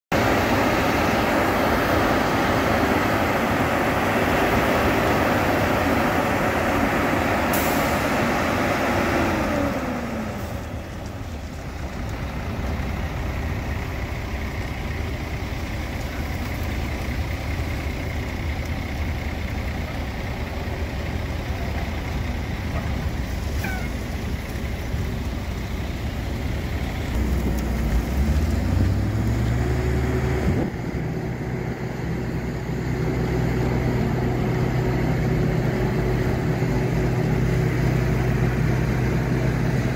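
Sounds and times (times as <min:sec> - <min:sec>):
heavy diesel engines running: 0:00.1 - 0:39.9
truck engine revving: 0:00.2 - 0:39.9.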